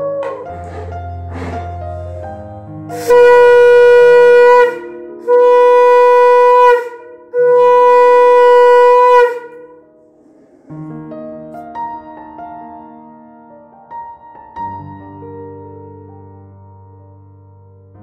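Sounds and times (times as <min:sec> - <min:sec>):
conch shell blasts: 0:03.0 - 0:09.7.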